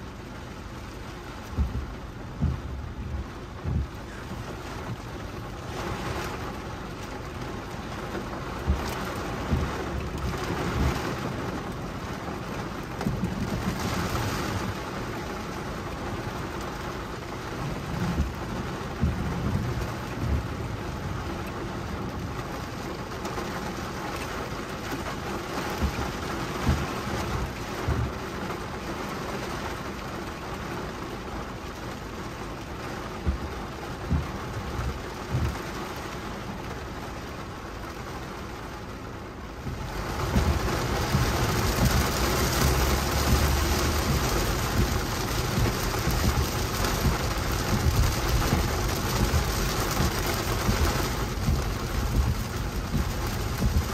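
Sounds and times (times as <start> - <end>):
heavy rain drumming on car roof: 0.0 - 53.9
low thumps: 1.5 - 4.1, 39.6 - 53.9.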